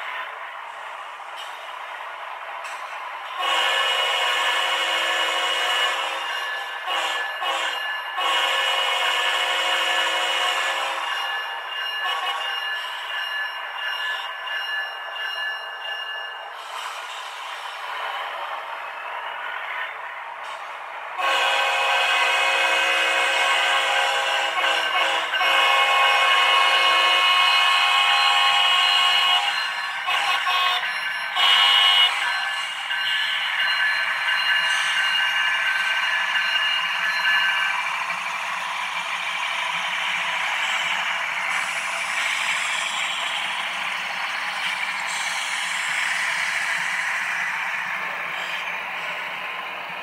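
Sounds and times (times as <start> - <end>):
model train running: 0.0 - 50.0
model train horn blasts: 3.4 - 6.2, 6.9 - 11.0, 21.2 - 29.5.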